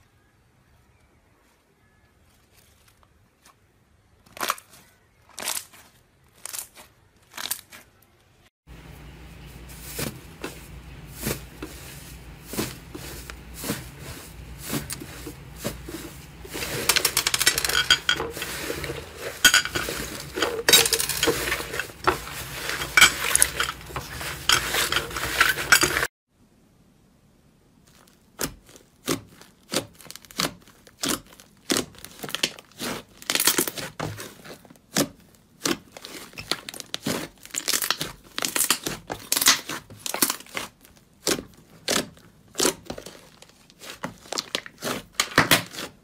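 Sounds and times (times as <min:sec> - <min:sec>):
slime crackling and tearing: 0:04.2 - 0:08.0, 0:27.9 - 0:46.0.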